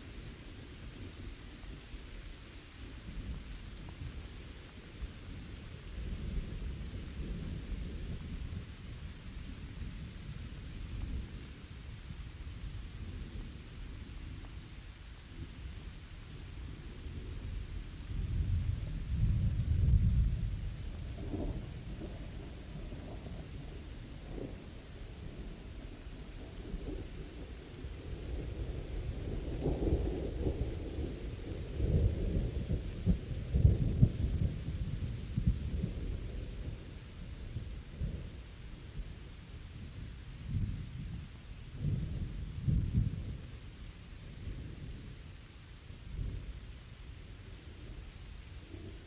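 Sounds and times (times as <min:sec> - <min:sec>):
steady rain: 0:00.0 - 0:49.0
rolling thunder: 0:17.2 - 0:38.4, 0:39.8 - 0:45.2.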